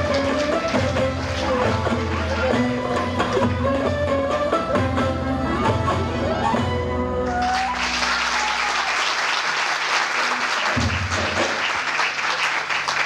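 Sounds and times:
audience applause: 0:00.0 - 0:02.6, 0:07.3 - 0:13.0
folk-dance music: 0:00.0 - 0:08.6.

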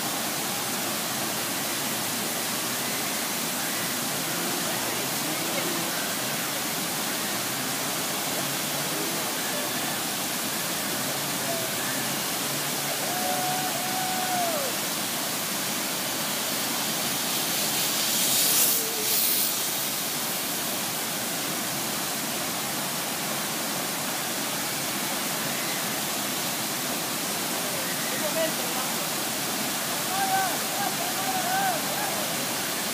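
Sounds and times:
waterfall rushing: 0:00.0 - 0:32.9.

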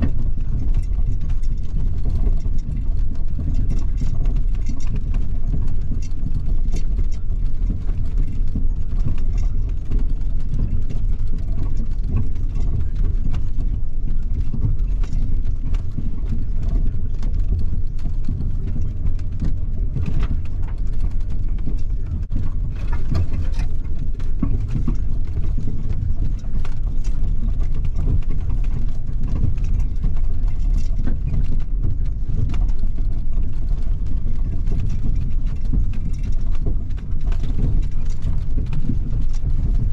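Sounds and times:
engine and drivetrain rumble: 0:00.0 - 0:39.9.

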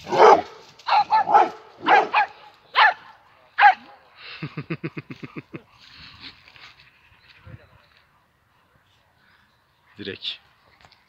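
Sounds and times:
dog barking: 0:00.0 - 0:03.9.

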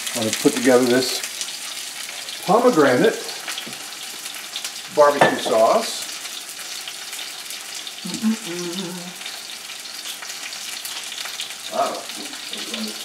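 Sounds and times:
fish searing in frying pan: 0:00.0 - 0:13.0.

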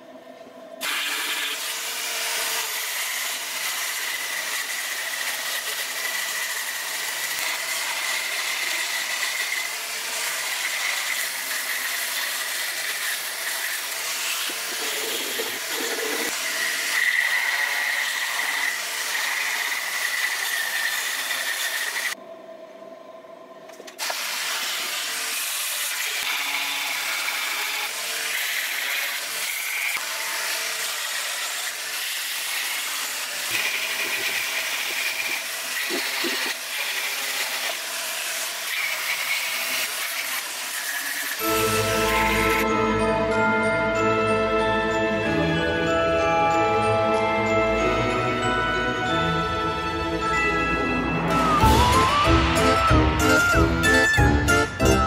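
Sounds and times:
rotary tool high whine: 0:00.0 - 0:22.2, 0:23.4 - 0:42.7
burr grinding into wood: 0:14.5 - 0:16.4.

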